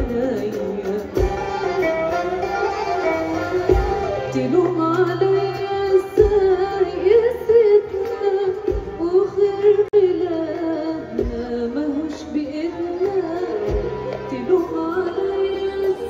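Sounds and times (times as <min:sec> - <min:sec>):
woman singing ornamented melody: 0:00.0 - 0:16.0
orchestra playing: 0:01.1 - 0:06.0.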